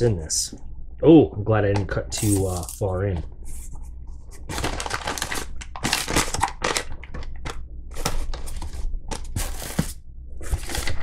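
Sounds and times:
plastic packaging crinkling: 4.4s - 11.0s.

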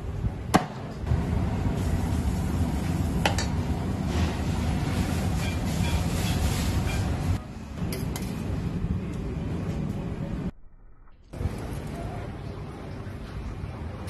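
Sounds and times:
kitchen background rumble: 0.0s - 10.5s.

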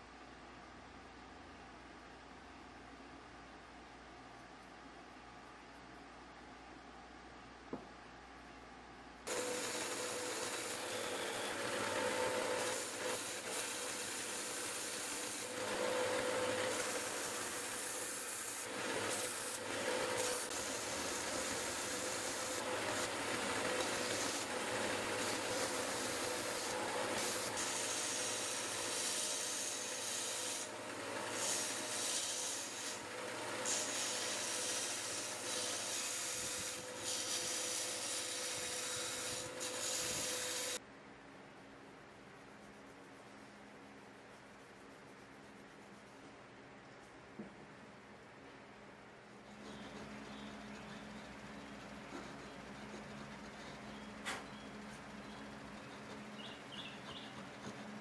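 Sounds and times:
wood sanding hiss: 9.3s - 40.8s.

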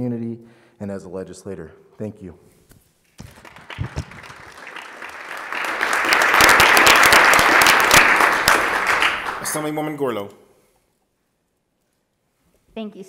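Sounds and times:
people applauding: 3.2s - 10.1s.

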